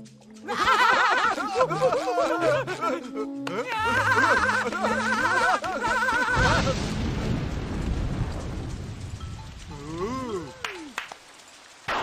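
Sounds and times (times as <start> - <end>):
rain hissing: 0.0 - 12.0
cartoon voices whooping: 3.4 - 6.8
thunderclap: 6.1 - 9.7.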